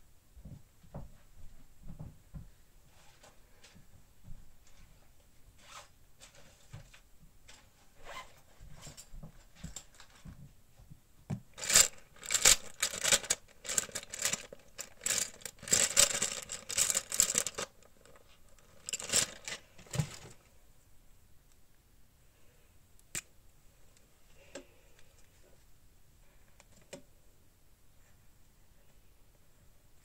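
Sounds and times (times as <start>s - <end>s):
crinkly sheet crackling and rustling: 11.5s - 20.5s.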